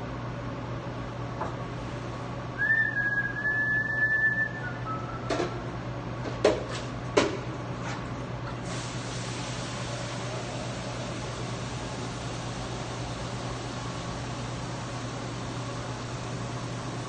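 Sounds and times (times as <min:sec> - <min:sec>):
low kitchen hum: 0:00.0 - 0:17.0.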